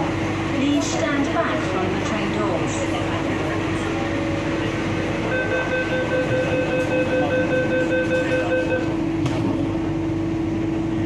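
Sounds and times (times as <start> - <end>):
train hum: 0.0 - 11.0
train doors shutting: 3.4 - 9.9
rapid warning beep: 5.3 - 8.9.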